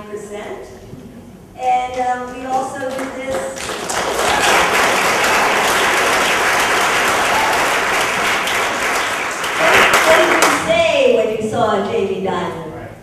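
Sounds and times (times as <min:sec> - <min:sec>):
woman's voice: 0:00.0 - 0:00.8, 0:01.6 - 0:03.6, 0:09.6 - 0:12.7
audience applauding: 0:02.8 - 0:10.7.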